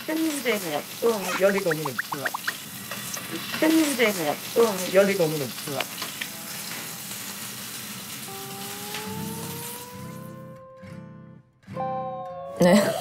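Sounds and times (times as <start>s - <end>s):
fish sizzling in a pan: 0.0s - 10.3s
person speaking: 1.0s - 2.6s
rising held tone: 8.3s - 10.8s.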